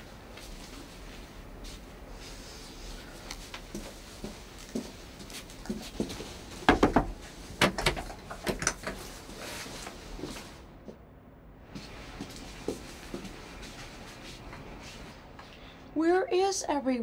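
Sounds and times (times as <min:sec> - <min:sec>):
loud sharp knocks: 0:06.7 - 0:08.0
footsteps on hard floor: 0:11.7 - 0:15.1.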